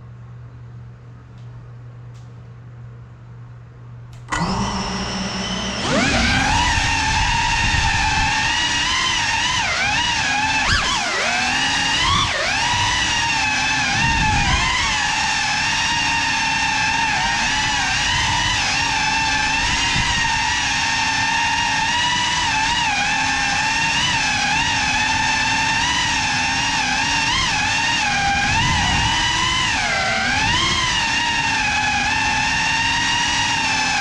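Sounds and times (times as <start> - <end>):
drone motors whining: 4.2 - 34.0.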